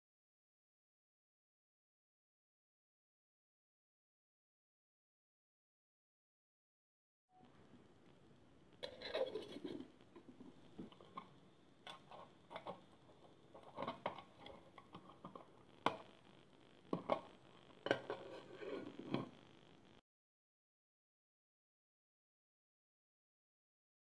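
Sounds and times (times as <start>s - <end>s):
metal pots clinking and scraping: 8.8s - 9.9s, 16.9s - 19.4s.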